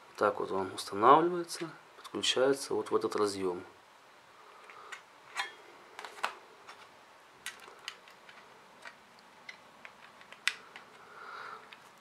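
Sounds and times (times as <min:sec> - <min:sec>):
small plastic parts clicking: 0:06.0 - 0:11.0, 0:11.6 - 0:12.0.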